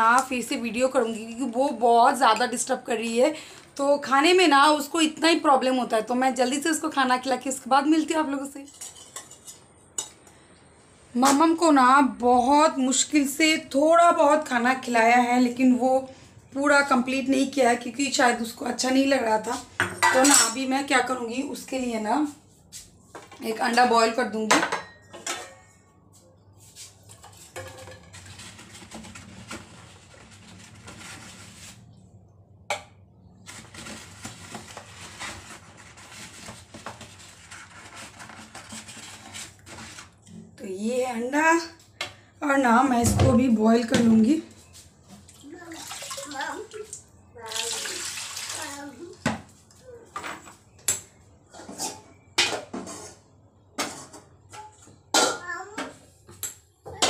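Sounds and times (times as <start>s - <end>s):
kitchen containers and utensils moved: 8.6s - 10.4s, 19.6s - 21.0s, 23.1s - 26.0s, 26.7s - 31.9s, 51.4s - 55.5s.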